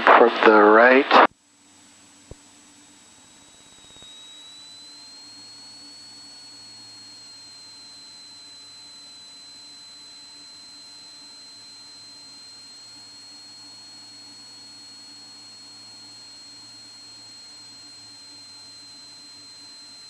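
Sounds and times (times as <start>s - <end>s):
faint aircraft engine drone: 0.0s - 20.0s
high-pitched whine: 0.0s - 20.0s.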